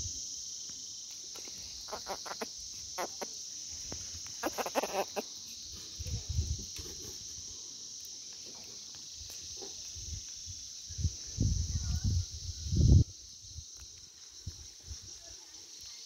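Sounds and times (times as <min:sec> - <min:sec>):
high-pitched insect drone: 0:00.0 - 0:16.0
clucking calls: 0:01.8 - 0:03.4, 0:04.4 - 0:05.3.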